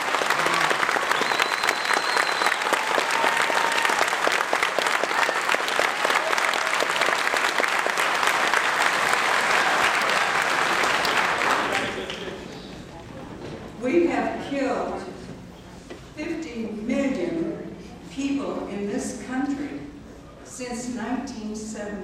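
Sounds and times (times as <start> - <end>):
audience applauding: 0.0 - 12.7.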